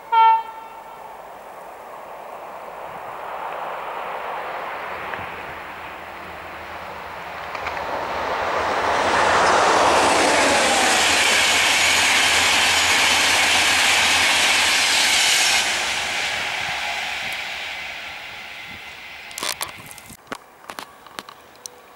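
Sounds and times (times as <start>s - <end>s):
train wheel and rail noise: 0.0s - 21.9s.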